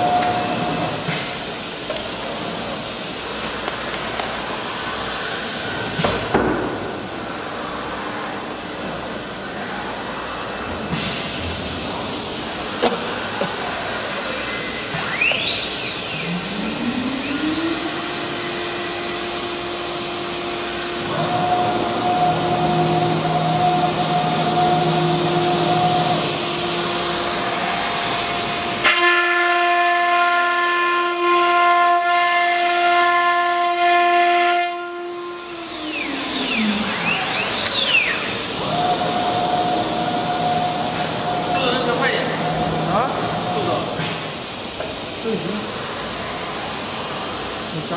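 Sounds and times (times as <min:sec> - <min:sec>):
router spindle whine: 0:14.4 - 0:28.8, 0:35.2 - 0:43.9.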